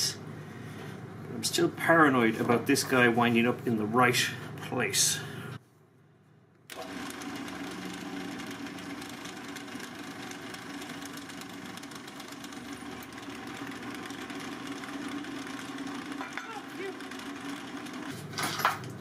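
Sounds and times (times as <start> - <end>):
drill press boring metal: 6.7 - 18.8.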